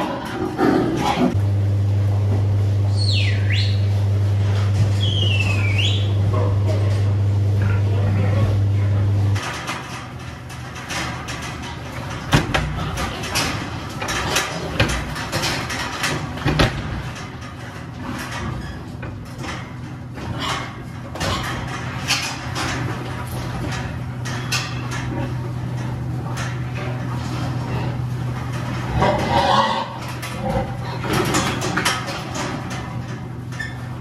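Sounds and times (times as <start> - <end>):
steady low hum: 0.0 - 34.0
sows knocking against bars: 9.4 - 34.0
steel gates clanking: 9.4 - 34.0.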